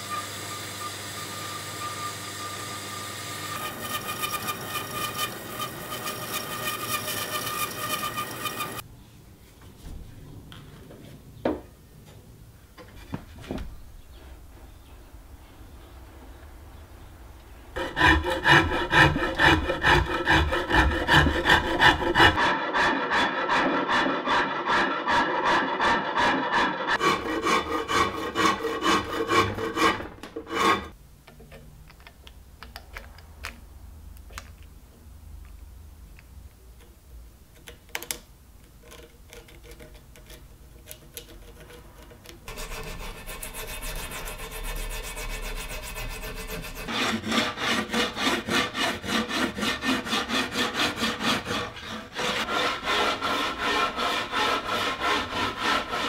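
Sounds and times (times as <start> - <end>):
rasp scraping wood: 3.5 - 8.8, 17.8 - 31.0, 38.8 - 56.0.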